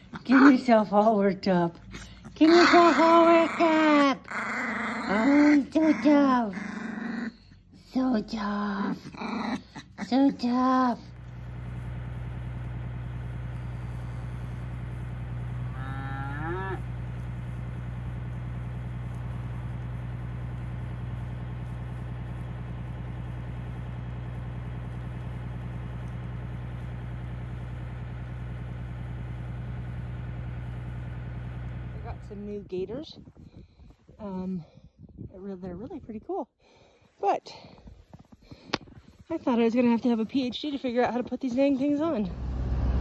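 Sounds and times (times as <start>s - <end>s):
vehicle engine idling: 10.5s - 32.8s, 40.1s - 43.0s
cow mooing: 15.6s - 17.0s.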